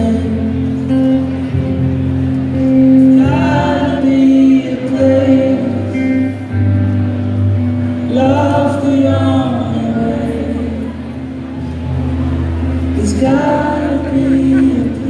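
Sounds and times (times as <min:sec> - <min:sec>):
live rock band playing: 0:00.0 - 0:15.0
person singing: 0:02.5 - 0:06.8, 0:07.9 - 0:11.3, 0:12.8 - 0:15.0.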